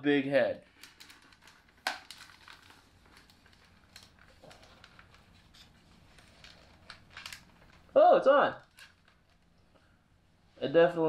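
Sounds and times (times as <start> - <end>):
plastic helmet clicking and rubbing: 0.6 - 8.0, 8.6 - 9.7.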